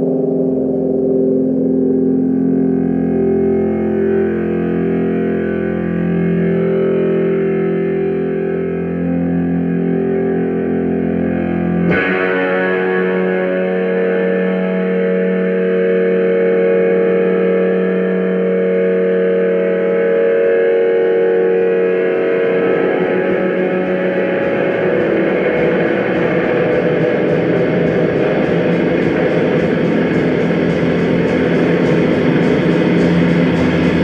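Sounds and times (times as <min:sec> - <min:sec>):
distorted electric guitar chord: 0:00.0 - 0:34.0
vacuum cleaner running: 0:21.6 - 0:34.0.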